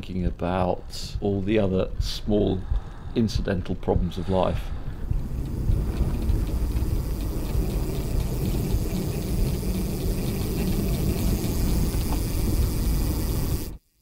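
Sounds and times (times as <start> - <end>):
rushing wind: 0.0 - 13.8
faint rapid ticking: 4.7 - 13.8
tyre noise rumbling: 4.8 - 13.8.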